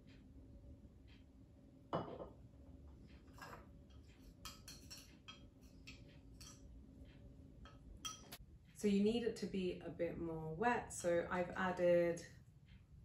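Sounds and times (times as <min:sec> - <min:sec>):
glass bottle knock on stone: 0:02.0 - 0:02.3
spoon clinking in glass bowl: 0:04.4 - 0:06.6, 0:07.6 - 0:08.4.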